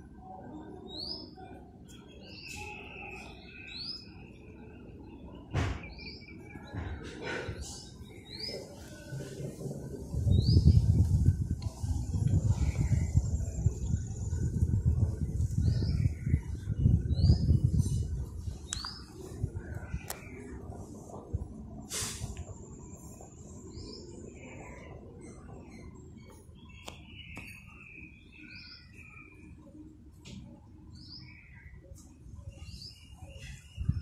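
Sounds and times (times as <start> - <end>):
wind buffeting microphone: 6.6 - 23.8, 32.3 - 34.0
bird chirp: 23.5 - 29.8.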